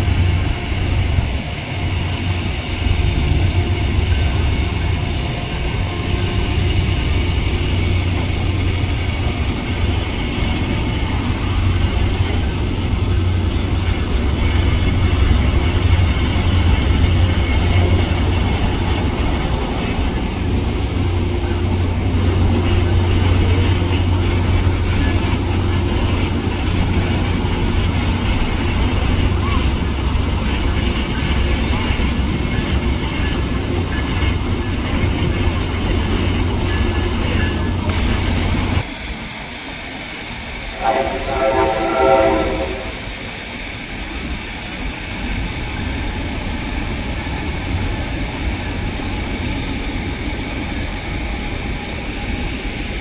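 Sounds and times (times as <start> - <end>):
diesel locomotive engine rumble: 0.0 - 53.0.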